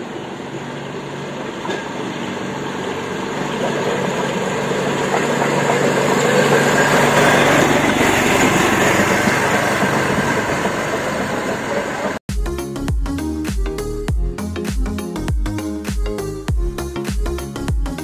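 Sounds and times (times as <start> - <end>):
motor trolley engine running: 0.0 - 12.2
trolley rolling on rails: 0.0 - 12.2.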